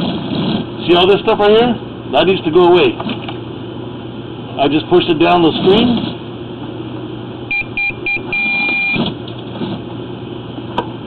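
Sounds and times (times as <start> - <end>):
low mechanical hum: 0.0 - 11.0
electronic beeps: 7.5 - 9.0.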